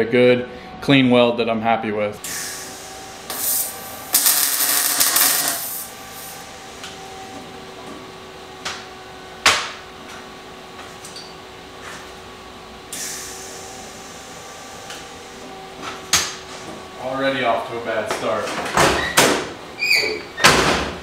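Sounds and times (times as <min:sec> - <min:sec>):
welder humming: 0:02.2 - 0:07.0
welding arc crackling: 0:03.2 - 0:06.3.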